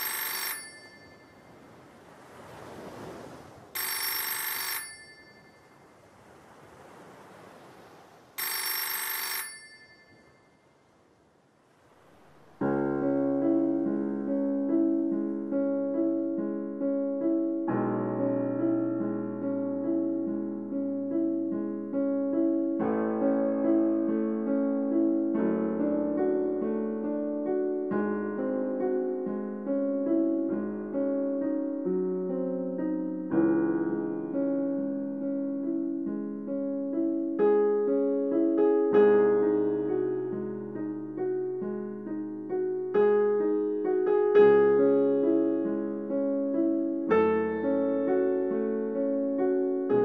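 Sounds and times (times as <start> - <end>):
telephone ringing: 0.0 - 1.6, 3.8 - 5.8, 8.4 - 10.6
slow piano music: 12.4 - 50.0.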